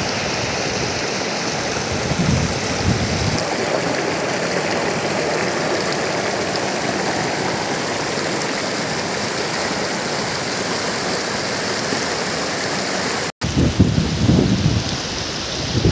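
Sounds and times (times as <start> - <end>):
river rapids rushing over boulders: 0.0 - 13.3
gusty low rumble: 1.9 - 3.4.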